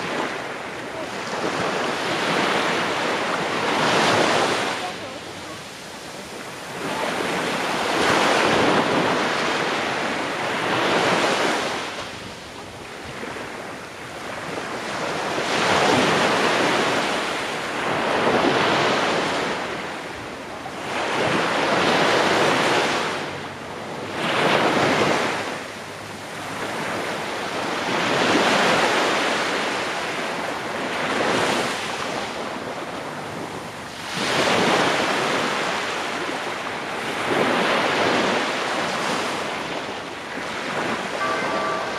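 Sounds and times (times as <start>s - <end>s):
waves washing up sandy beach: 0.0s - 41.9s.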